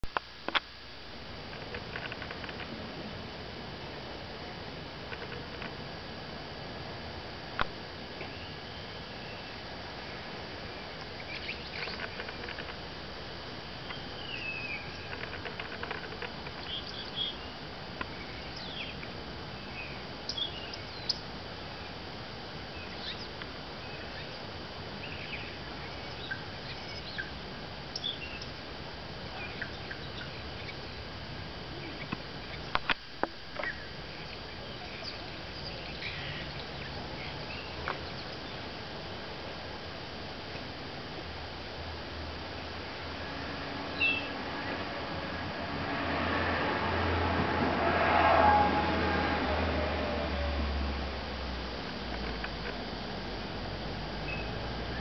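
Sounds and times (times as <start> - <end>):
steady hiss: 0.0 - 55.0
birds chirping: 8.2 - 9.7, 10.7 - 12.8, 13.8 - 22.0, 22.6 - 28.6, 29.2 - 31.1, 31.7 - 32.8, 33.6 - 38.8, 43.9 - 44.9.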